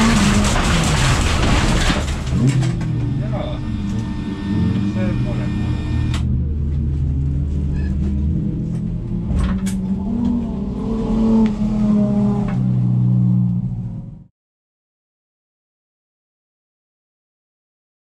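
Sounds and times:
car engine revving: 0.0 - 14.3.

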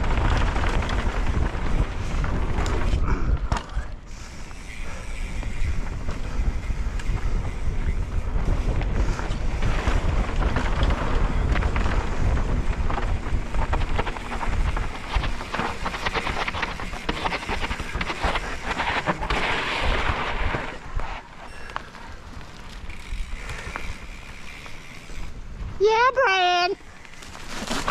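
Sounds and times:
wind buffeting microphone: 0.0 - 27.9
tyres crunching on dirt and leaves: 26.8 - 27.9.

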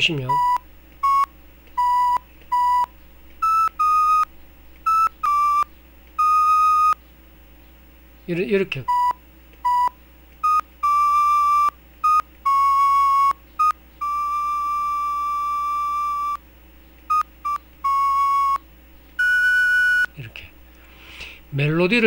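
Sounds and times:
simple synthesizer melody: 10.8 - 16.4, 17.2 - 18.6, 19.2 - 20.1.

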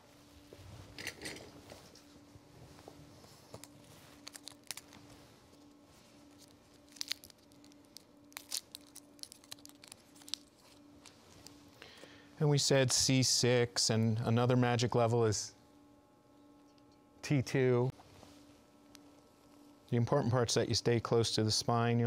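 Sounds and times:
crinkling and tearing packaging: 3.6 - 5.1, 6.3 - 11.6
needles clicking: 6.4 - 10.6.

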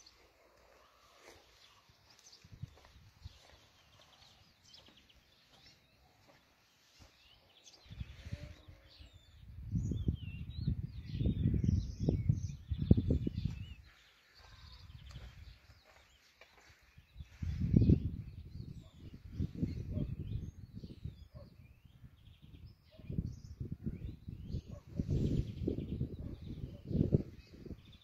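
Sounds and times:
small birds chirping: 0.0 - 28.0
wind buffeting microphone: 2.3 - 3.5, 7.8 - 28.0.

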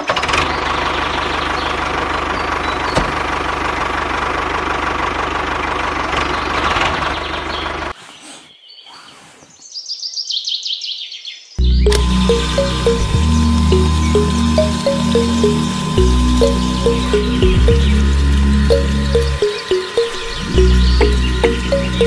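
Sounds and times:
tractor engine running: 0.0 - 7.9, 11.6 - 22.0.

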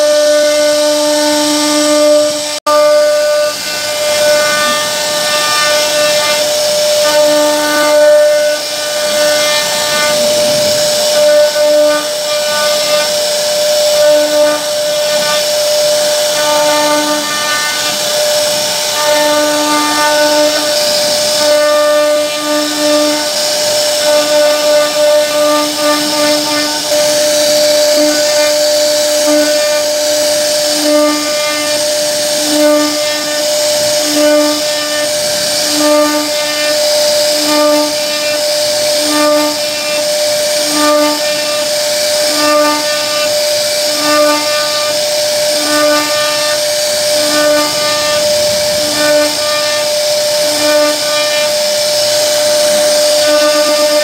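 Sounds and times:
bit carving lower tone: 0.0 - 54.0
router spindle high whine: 0.0 - 54.0.

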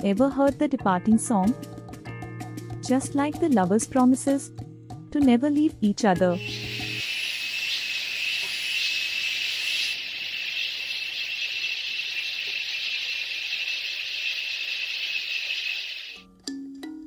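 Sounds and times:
high-pitched drone and hiss: 6.3 - 16.2
thin whine: 6.4 - 16.2.

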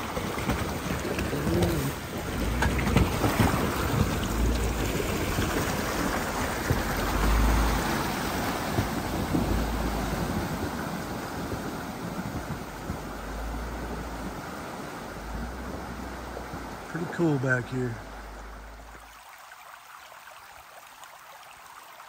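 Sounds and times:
wind rumbling on microphone: 0.0 - 17.2
engine running low: 0.0 - 19.0
water splashing around tyres: 0.0 - 22.0.

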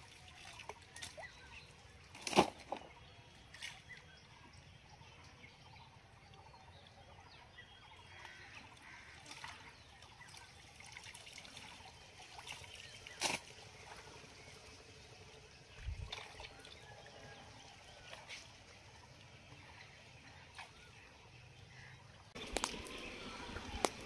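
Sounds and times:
water trickling and sloshing: 0.0 - 24.0
small crackles: 22.4 - 24.0.

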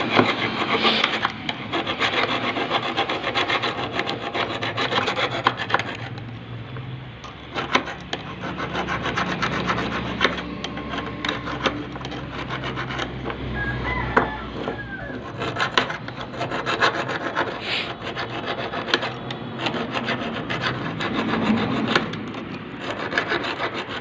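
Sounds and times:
steel tool scraping metal plate: 0.0 - 6.5, 7.2 - 24.0.

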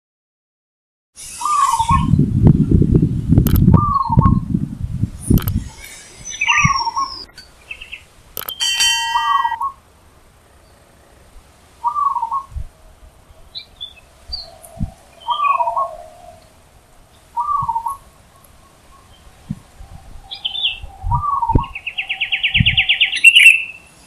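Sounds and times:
bright ringing chime: 8.4 - 9.6.

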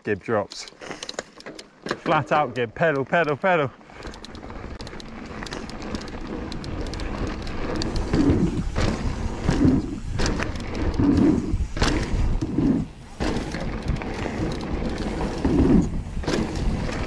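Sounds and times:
bike rattling and clicking: 0.2 - 17.0
bike tyres on dirt and rock: 0.2 - 17.0
wind rumble on microphone: 6.2 - 17.0.

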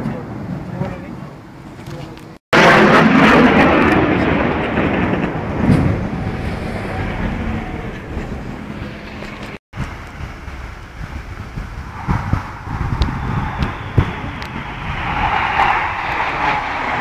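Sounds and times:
jet aircraft flying overhead: 2.6 - 17.0.

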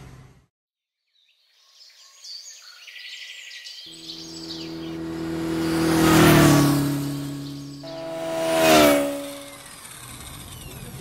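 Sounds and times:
birds chirping: 1.9 - 9.7
motorcycle engine approaching: 3.9 - 10.2.

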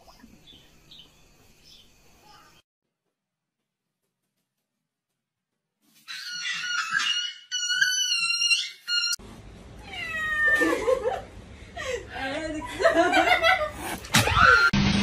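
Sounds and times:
cat meowing: 9.8 - 10.7.

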